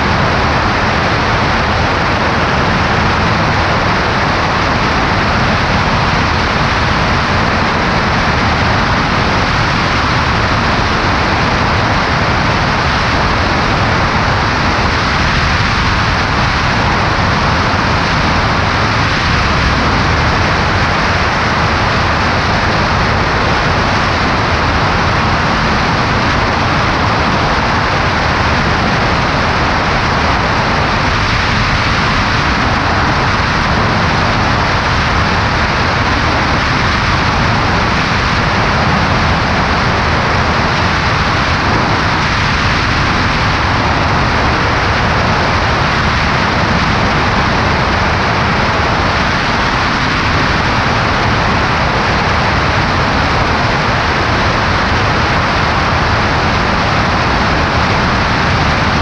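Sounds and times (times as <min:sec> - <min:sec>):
aircraft engine and propeller drone: 0:00.0 - 0:59.0
wind rush: 0:00.0 - 0:59.0.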